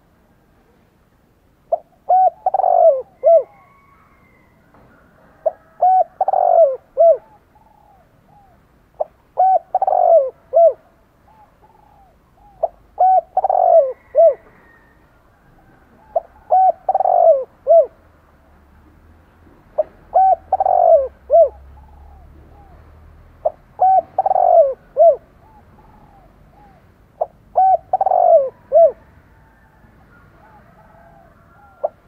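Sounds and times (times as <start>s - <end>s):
dove cooing: 1.7s - 18.0s, 19.7s - 32.0s.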